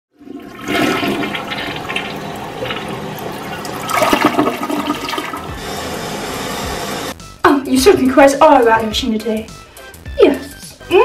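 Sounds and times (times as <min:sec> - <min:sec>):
toilet flushing: 0:00.1 - 0:07.1.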